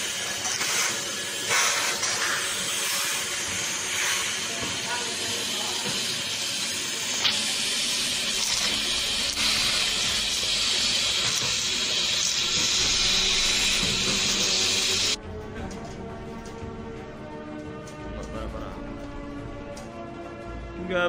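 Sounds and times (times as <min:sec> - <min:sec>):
vacuum cleaner hiss: 0:00.0 - 0:15.2.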